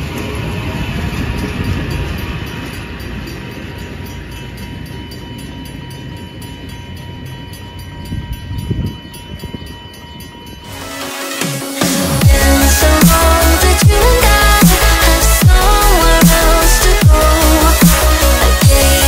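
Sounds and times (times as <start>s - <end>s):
train rumbling past: 0.0s - 19.0s.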